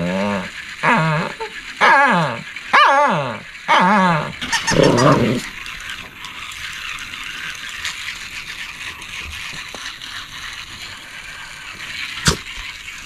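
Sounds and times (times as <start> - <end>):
dog toy rattling clatter: 3.5 - 13.0.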